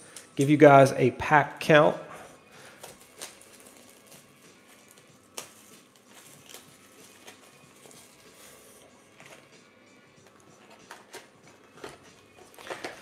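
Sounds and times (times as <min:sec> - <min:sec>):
plastic shrink-wrap crinkling: 0:02.6 - 0:09.5.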